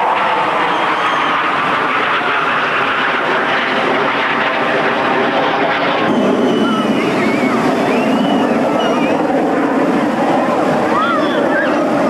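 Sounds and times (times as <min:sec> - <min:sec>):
churning water: 0:00.0 - 0:12.0
many voices: 0:06.1 - 0:12.0
children shouting and shrieking: 0:06.5 - 0:09.2, 0:10.8 - 0:12.0.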